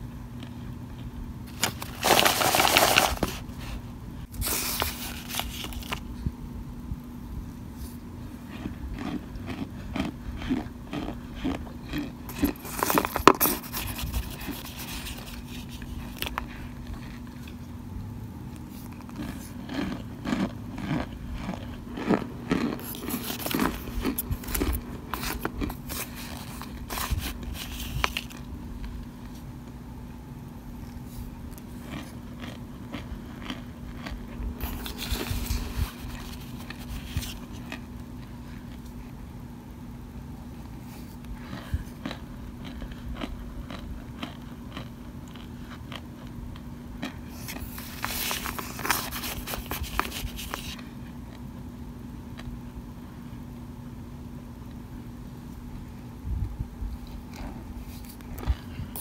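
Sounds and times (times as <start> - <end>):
spoon scraping cornstarch in bowl: 12.3 - 16.4, 22.6 - 28.3.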